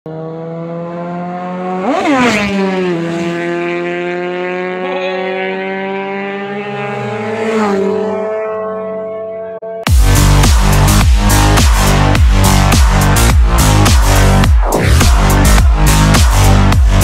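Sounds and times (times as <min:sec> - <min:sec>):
motorcycles racing past: 0:00.1 - 0:09.8
engines droning: 0:00.1 - 0:17.0.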